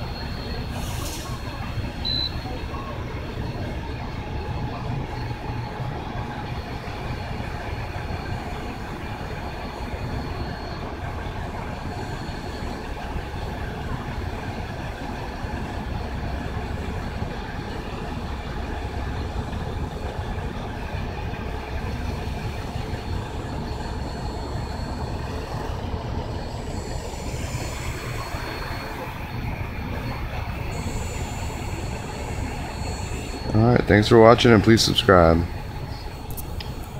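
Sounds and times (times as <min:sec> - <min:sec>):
faint high whine: 0:22.6 - 0:36.9.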